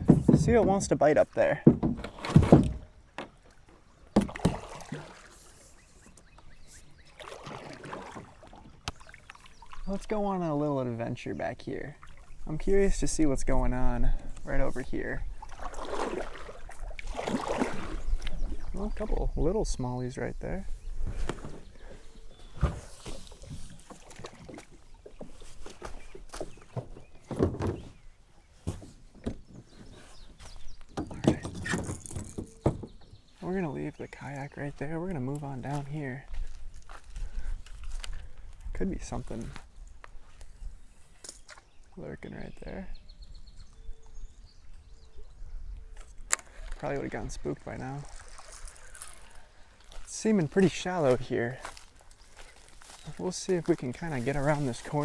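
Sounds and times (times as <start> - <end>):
paddle knocking on kayak hull: 0.0 - 0.9, 4.2 - 5.1
kayak hull knocking and scraping: 0.0 - 10.3, 10.9 - 19.8, 20.7 - 38.3
footsteps on riverbank: 2.0 - 10.4, 11.5 - 19.2, 20.7 - 41.9, 45.9 - 55.0
water splashing and dripping: 3.4 - 5.5, 7.0 - 10.3, 15.4 - 18.9, 46.2 - 50.1.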